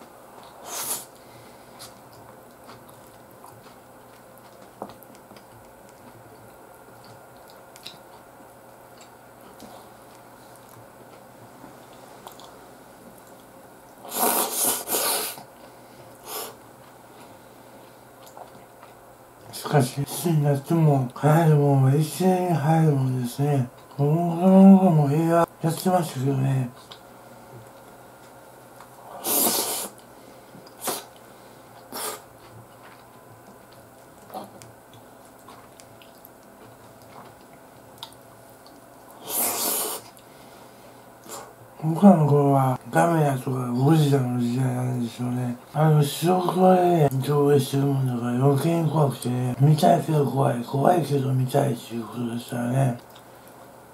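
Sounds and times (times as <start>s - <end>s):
faint chewing: 0.3s - 20.2s, 26.7s - 42.4s, 53.0s - 53.7s
chewing clicks: 1.8s - 8.3s, 18.2s - 19.0s, 31.8s - 39.2s.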